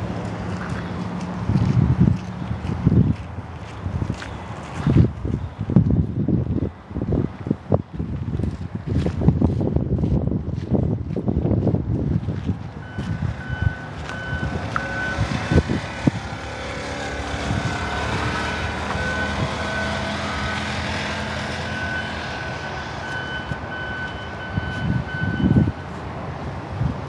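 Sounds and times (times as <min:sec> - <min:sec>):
short high beeps: 0:12.8 - 0:15.2, 0:23.0 - 0:25.8.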